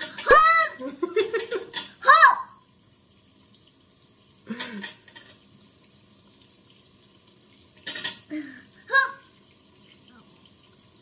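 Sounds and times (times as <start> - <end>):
child vocal sounds: 0.2 - 0.9, 2.0 - 2.6, 8.3 - 9.3.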